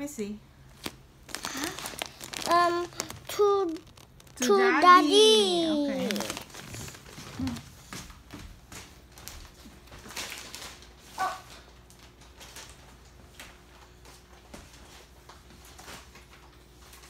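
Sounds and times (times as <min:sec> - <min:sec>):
gift boxes rustling: 0:00.7 - 0:07.7.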